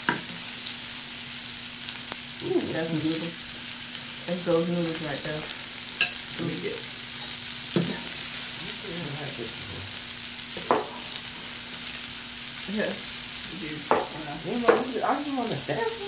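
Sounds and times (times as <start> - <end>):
food sizzling on a grill: 0.0 - 16.0
utensil knocking against pan: 13.9 - 14.1.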